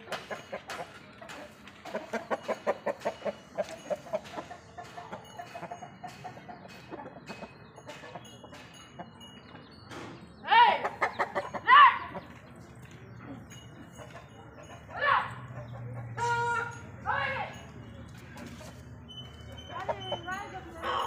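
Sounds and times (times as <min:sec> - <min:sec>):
rooster clucking: 0:00.1 - 0:08.8, 0:10.8 - 0:12.3.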